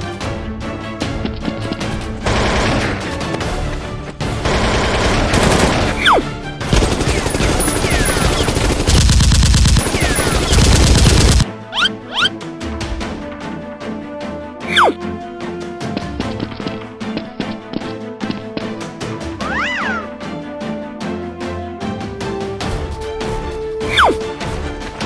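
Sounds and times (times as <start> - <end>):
action background music: 0.0 - 25.0
rapid machine-gun fire: 2.3 - 3.0, 4.4 - 11.4.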